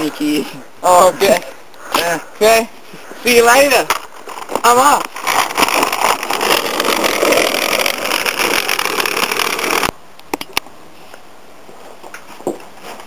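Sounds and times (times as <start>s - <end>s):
skateboard rolling on asphalt: 3.9s - 10.0s.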